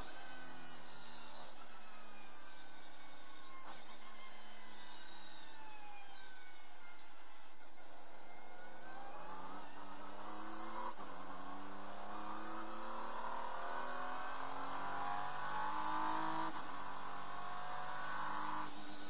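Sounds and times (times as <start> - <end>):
race car engine accelerating: 8.3 - 19.0.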